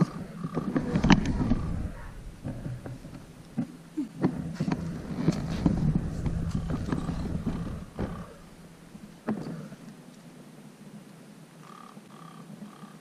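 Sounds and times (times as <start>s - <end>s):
sharp knocks: 0.5s - 9.7s.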